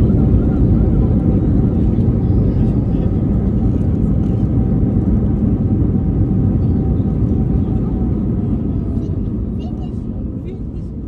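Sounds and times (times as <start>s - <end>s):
aircraft cabin rumble of engines and wheels: 0.0s - 11.0s.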